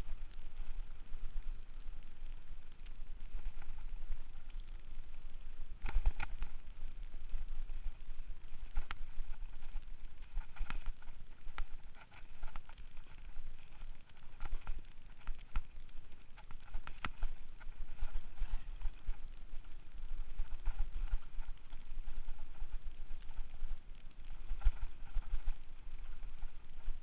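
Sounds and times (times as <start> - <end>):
low wind rumble: 0.0 - 27.0
mountain bike rattling on dirt trail: 5.7 - 27.0.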